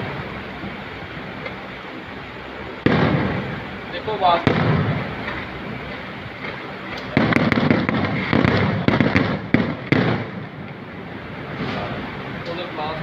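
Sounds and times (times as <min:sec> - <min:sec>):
fireworks bangs and crackling: 0:02.7 - 0:13.0.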